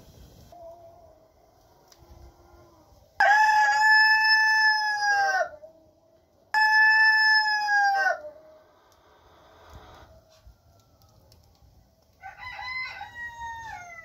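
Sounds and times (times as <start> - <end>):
rooster crowing: 3.2 - 5.6, 6.5 - 8.4, 12.2 - 14.0.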